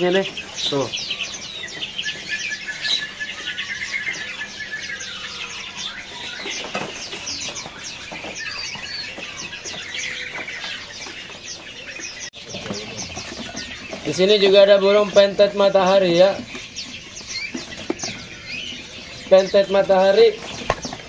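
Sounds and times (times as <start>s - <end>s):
songbirds chirping and whistling: 0.0s - 21.0s.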